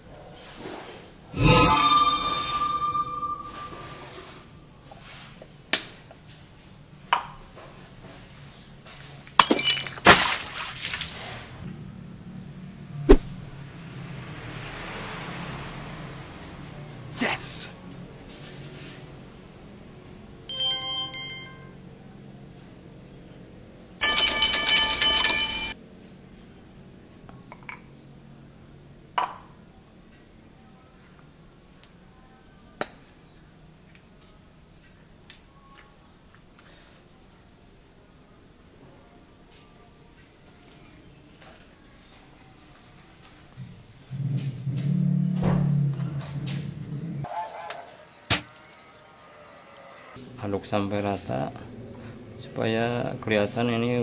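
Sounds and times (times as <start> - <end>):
electronic notification chime: 1.4 - 4.2, 20.5 - 21.6.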